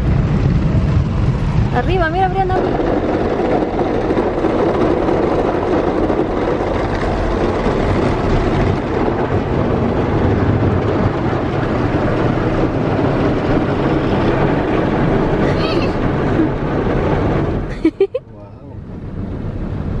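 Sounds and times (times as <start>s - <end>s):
car wash brushes and water spray: 0.0s - 18.2s.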